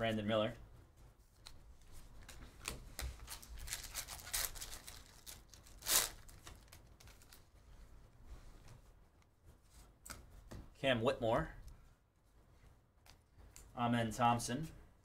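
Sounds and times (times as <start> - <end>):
foil pack crinkling and tearing: 3.2 - 7.5.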